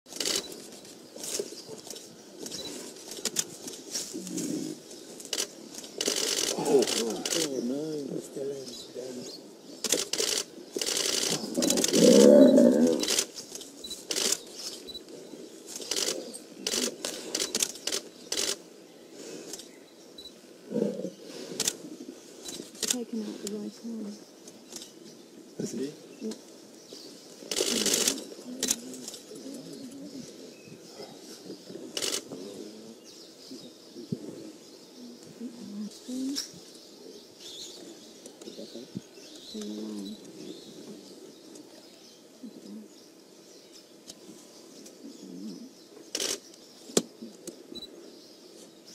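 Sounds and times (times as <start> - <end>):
sharp clicks: 0.1 - 0.6, 5.2 - 7.5, 9.8 - 12.2, 13.0 - 15.1, 15.8 - 18.6, 22.4 - 23.6, 27.5 - 30.0, 32.0 - 32.4, 46.1 - 47.9
doves cooing: 0.1 - 8.4, 9.0 - 18.6, 20.6 - 24.2, 27.3 - 41.8, 44.2 - 46.4
small birds chirping: 0.1 - 48.9
lion snarling: 6.0 - 7.5, 10.9 - 13.3, 20.7 - 21.6.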